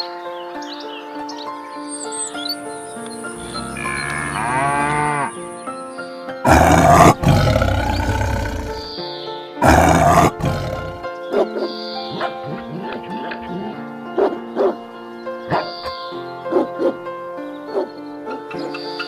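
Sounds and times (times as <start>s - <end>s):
background music: 0.0s - 19.0s
cow mooing: 3.4s - 5.4s, 6.5s - 8.8s, 9.6s - 11.0s
lion roaring: 6.4s - 8.9s, 9.6s - 11.0s.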